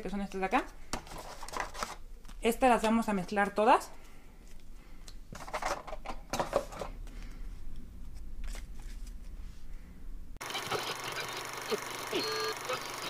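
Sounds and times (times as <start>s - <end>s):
cards being shuffled: 0.9s - 3.6s, 8.0s - 9.4s.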